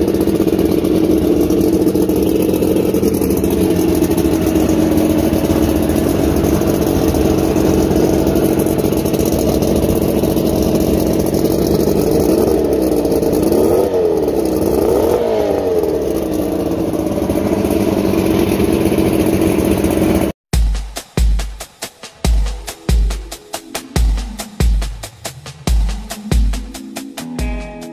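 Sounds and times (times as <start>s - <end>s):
outboard engine revving: 0.0s - 20.4s.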